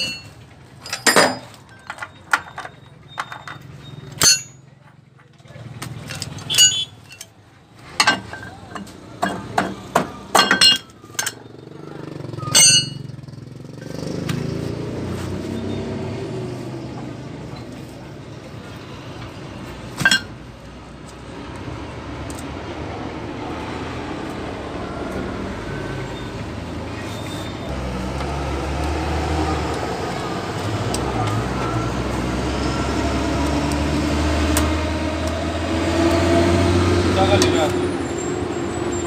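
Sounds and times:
steel tools clanking on metal: 0:00.0 - 0:04.8, 0:06.0 - 0:11.6, 0:12.4 - 0:13.2, 0:20.0 - 0:20.4
vehicle engine rumbling: 0:00.0 - 0:39.0.

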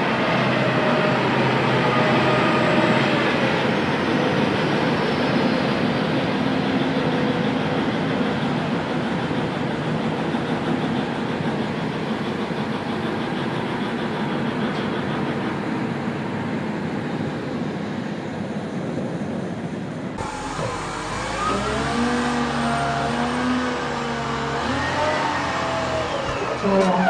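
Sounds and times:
wheel loader diesel engine working: 0:00.0 - 0:27.0
trucks driving past rumbling: 0:20.2 - 0:27.0.

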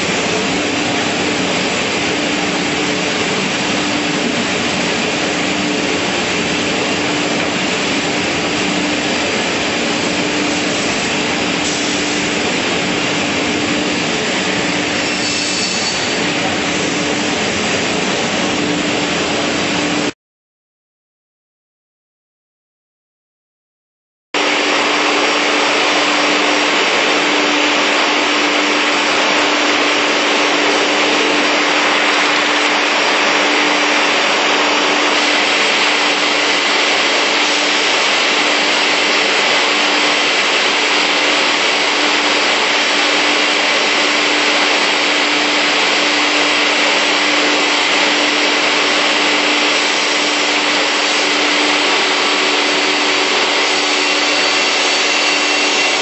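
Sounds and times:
panel saw whirring: 0:24.4 - 0:56.0.

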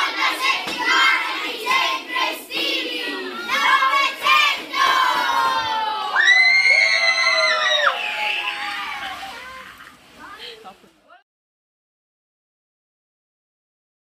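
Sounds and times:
children chanting shouts: 0:00.0 - 0:06.5
long high-pitched shout: 0:05.6 - 0:09.6.

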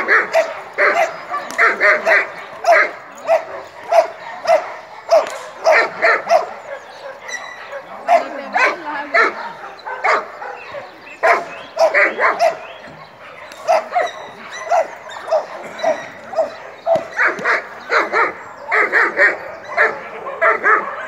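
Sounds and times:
dog barking: 0:00.0 - 0:21.0.

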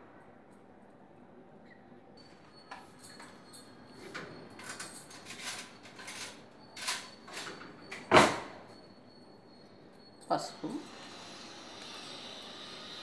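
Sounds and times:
items clicking and rustling on counter: 0:04.0 - 0:08.5.

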